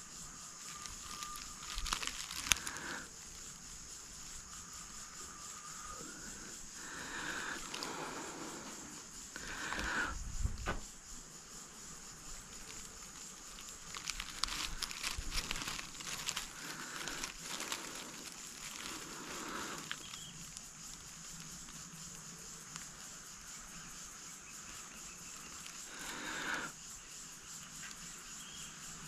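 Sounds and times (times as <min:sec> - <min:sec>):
dry leaves and twigs rustling: 0:00.0 - 0:10.2, 0:11.4 - 0:26.7
high insect drone: 0:00.0 - 0:29.0
soft thumps: 0:10.4 - 0:10.9.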